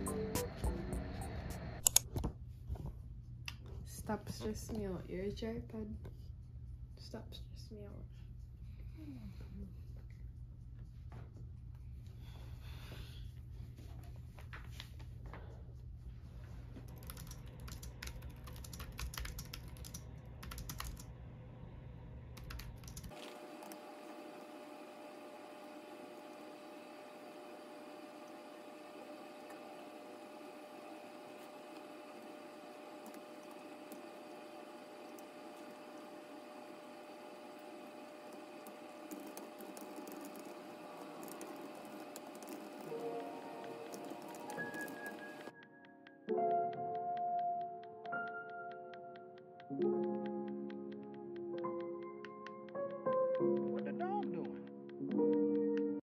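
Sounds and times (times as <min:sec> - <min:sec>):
soft music: 0:00.0 - 0:01.8, 0:40.7 - 0:56.0
low steady hum: 0:00.0 - 0:23.4
typing on keyboard: 0:16.9 - 0:21.1, 0:22.4 - 0:23.8, 0:38.3 - 0:45.5.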